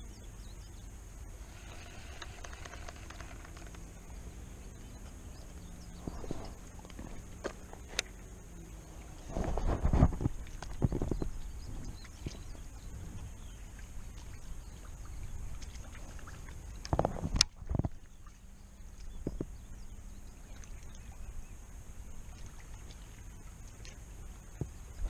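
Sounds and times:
low rumble: 0.4 - 15.9.

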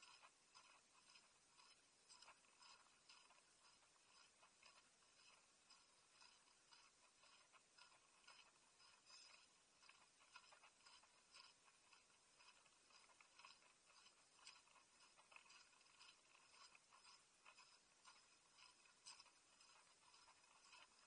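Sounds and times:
faint scratching and light ticks: 0.0 - 21.0.

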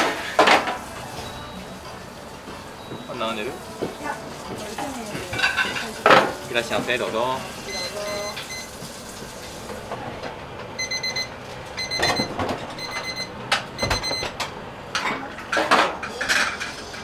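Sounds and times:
utensils and dishes clinking: 0.0 - 17.0
kitchen timer beeping: 2.8 - 3.6, 7.7 - 8.8, 10.8 - 14.3.

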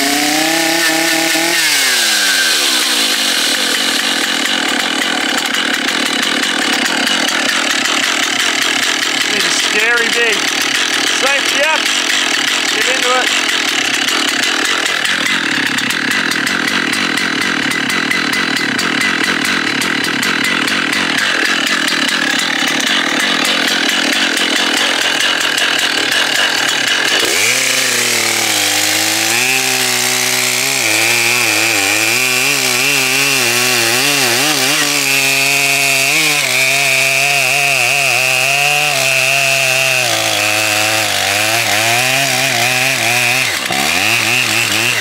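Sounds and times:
chainsaw cutting log: 0.0 - 45.0.

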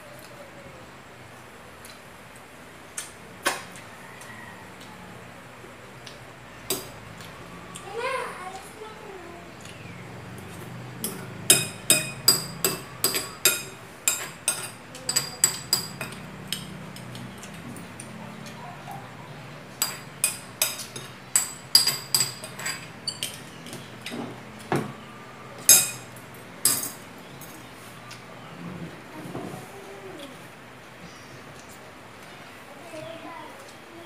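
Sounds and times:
utensils clinking on glass bowl: 11.0 - 18.2, 19.8 - 23.8, 25.7 - 27.6.

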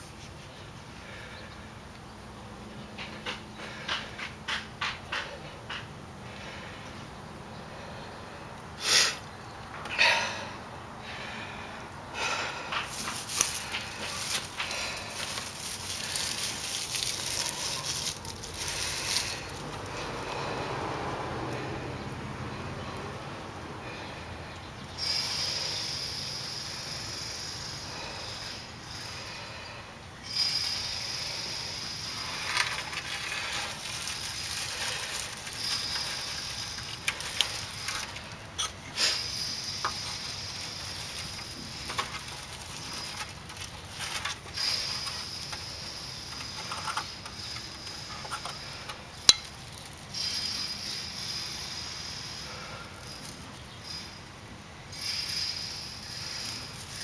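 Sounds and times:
dry pine needles rustling: 12.2 - 21.7, 31.2 - 54.3, 55.5 - 57.0
char scraping from wood: 12.7 - 20.9, 30.4 - 54.1
high hiss: 25.0 - 32.7, 54.9 - 57.0.

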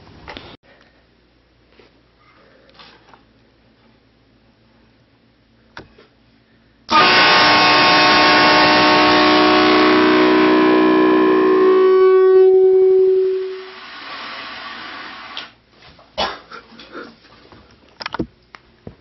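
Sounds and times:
train horn blasting: 6.9 - 15.3.

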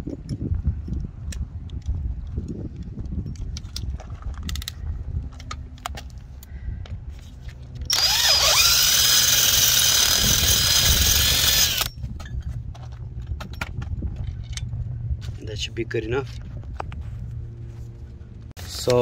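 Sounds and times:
power drill boring through metal: 7.9 - 11.9.

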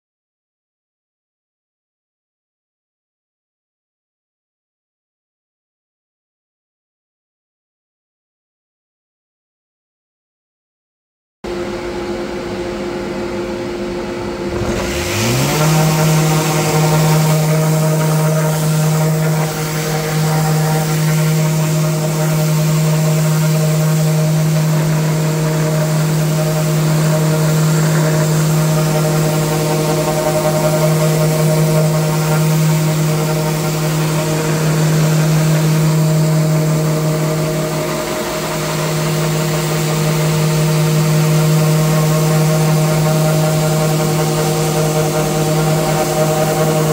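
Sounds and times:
steady hum: 11.5 - 46.9
orbital sander sanding: 14.4 - 46.9.

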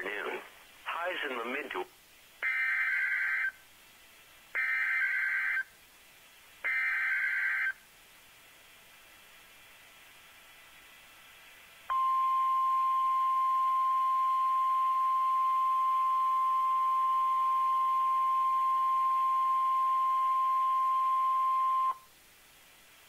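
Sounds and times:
high-pitched alarm beep: 11.9 - 22.0.

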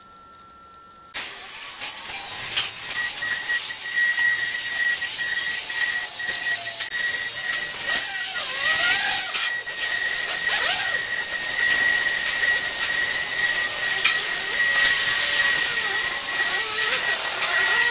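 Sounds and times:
router spindle whining: 1.3 - 17.9
bit cutting foam hiss: 1.4 - 17.9.

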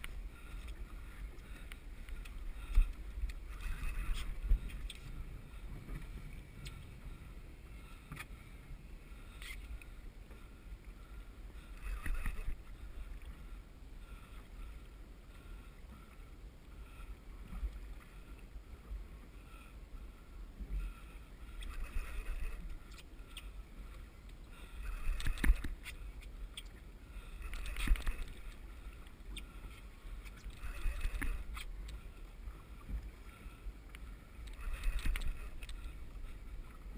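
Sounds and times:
wind rumbling on microphone: 0.0 - 10.9, 11.7 - 13.5, 21.5 - 29.4, 30.2 - 36.9
water lapping at boat hull: 9.1 - 36.9.

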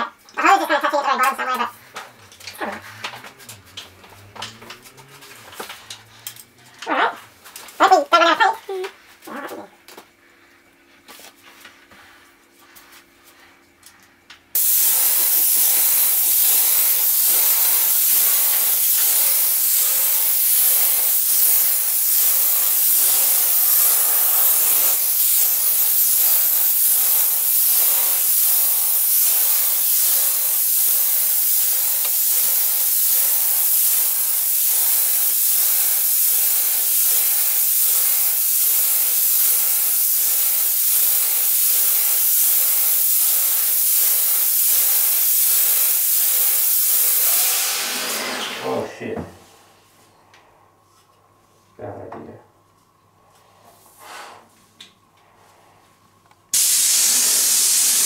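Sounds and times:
paint sprayer hissing: 2.3 - 6.1, 14.6 - 48.6, 56.5 - 58.0.

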